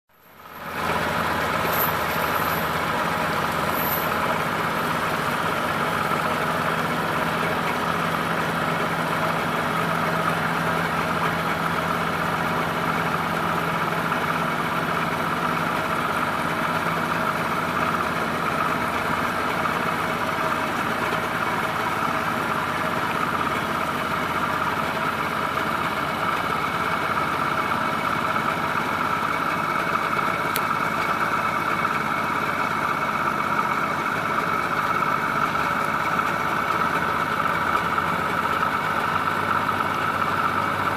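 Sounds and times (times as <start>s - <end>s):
boat engine running: 0.4s - 40.9s.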